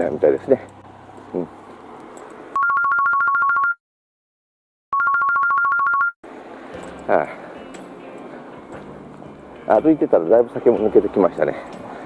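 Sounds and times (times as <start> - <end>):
faint outdoor background: 0.0 - 3.8, 5.0 - 12.0
telephone ringing with warbling trill: 2.6 - 3.8, 5.0 - 6.1.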